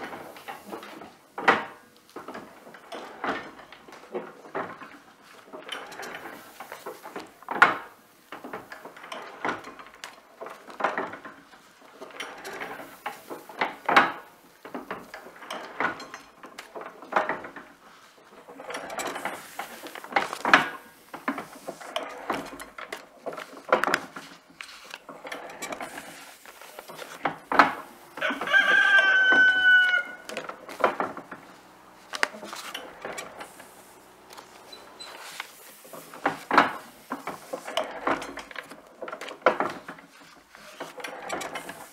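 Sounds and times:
printing press clacking: 0.0s - 41.9s
rooster crowing: 28.2s - 30.3s.

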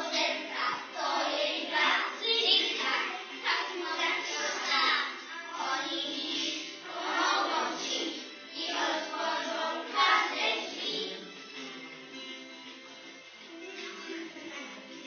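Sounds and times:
children singing together: 0.0s - 11.4s.

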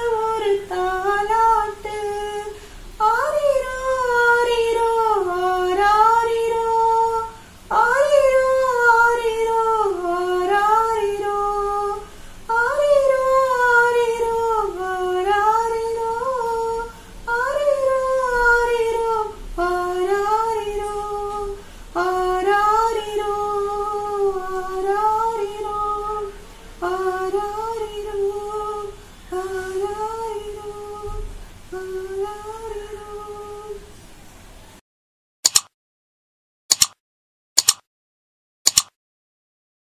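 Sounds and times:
woman singing unaccompanied: 0.0s - 34.0s
singer breathing: 2.5s - 3.0s, 12.0s - 12.5s, 16.9s - 17.3s, 21.6s - 22.0s.

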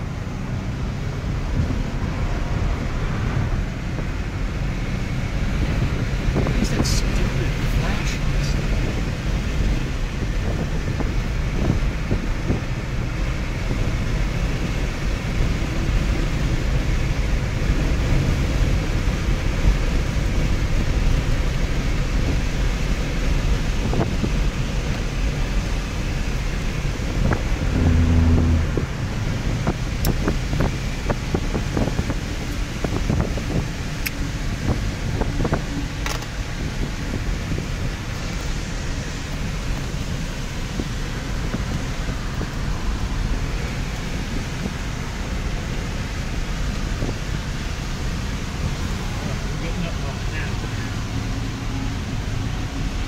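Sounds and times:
tyres on wet road: 0.0s - 53.0s
wind buffeting microphone: 23.5s - 45.3s
short low tone: 27.5s - 29.5s.

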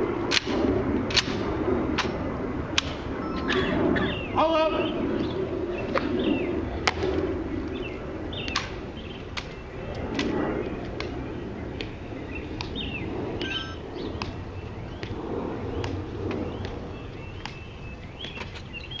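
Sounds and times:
birds chirping: 2.8s - 19.0s.

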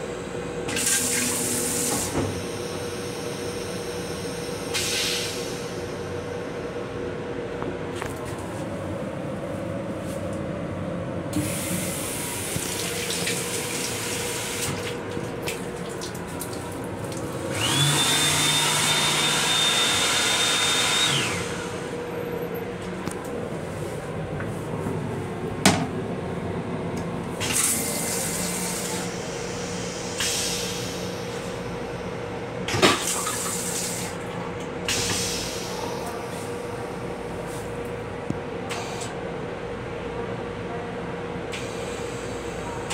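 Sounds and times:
train running hum: 21.0s - 42.9s.

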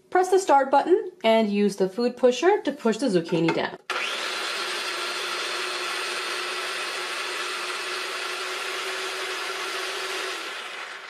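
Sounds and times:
food processor motor running: 3.9s - 11.0s.

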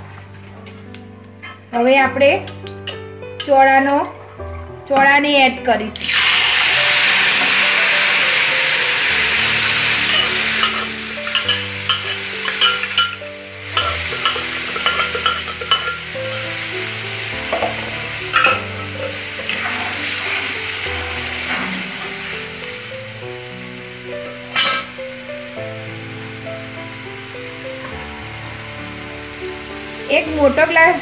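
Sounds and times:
hot oil hissing and sizzling: 5.9s - 31.0s
metal ladle scraping pan: 9.4s - 16.5s, 17.5s - 20.7s, 24.5s - 25.0s.

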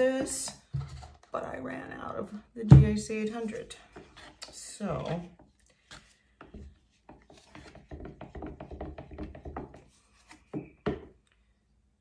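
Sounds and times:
stir stick scraping plastic pitcher: 0.0s - 1.6s, 3.2s - 10.7s.

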